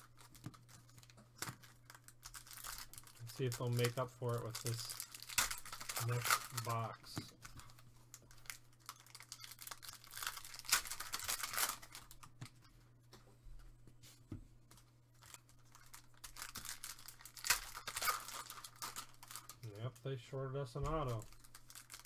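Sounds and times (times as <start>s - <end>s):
foil wrappers tearing and crinkling: 0.0s - 12.2s, 15.2s - 19.9s, 20.9s - 22.0s
cards shuffling: 0.0s - 12.6s.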